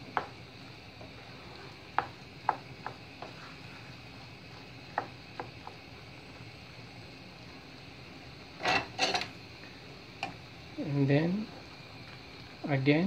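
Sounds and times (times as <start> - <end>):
simmering pan hiss: 0.0 - 13.0
wooden spatula clicking on pan: 1.9 - 3.4.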